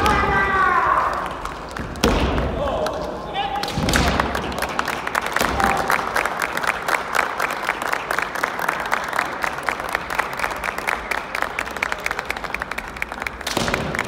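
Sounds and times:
people clapping: 0:00.0 - 0:02.0, 0:03.6 - 0:14.0.

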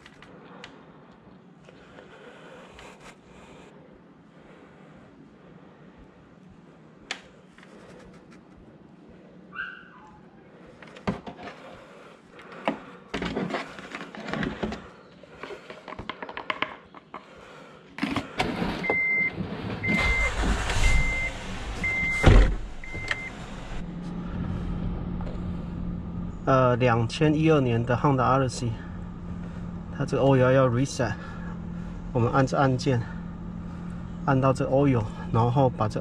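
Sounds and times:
low steady hum: 0:00.0 - 0:36.0
handling knocks and clicks: 0:12.6 - 0:17.3
car warning chime beeping: 0:18.8 - 0:23.4.

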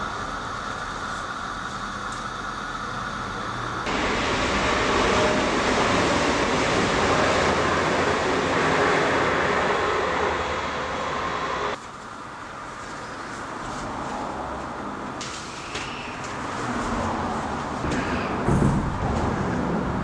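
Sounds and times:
traffic rumbling over bridge: 0:02.9 - 0:11.8, 0:15.8 - 0:20.0.

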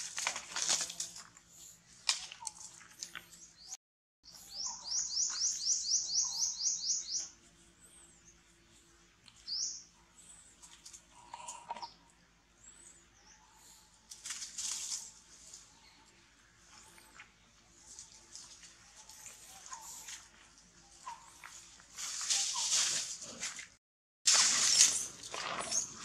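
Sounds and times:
bird chirping: 0:02.4 - 0:08.5, 0:09.2 - 0:13.8.

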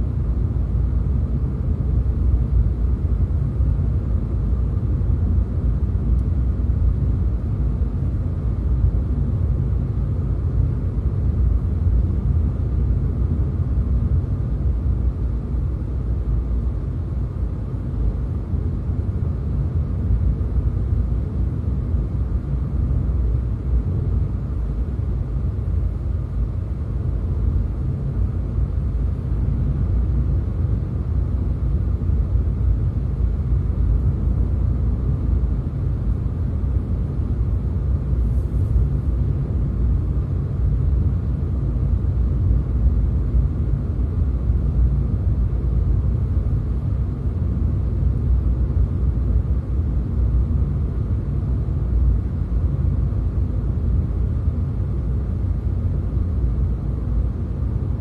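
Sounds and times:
car engine and tyre noise: 0:19.5 - 0:41.1.

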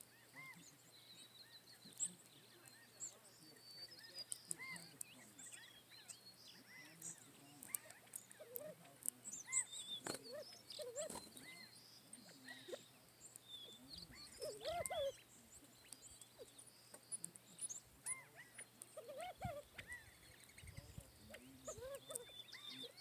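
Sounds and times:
quail contact calls: 0:00.0 - 0:23.0
small birds chirping: 0:00.0 - 0:23.0
light clicks on gravel: 0:07.0 - 0:11.6.

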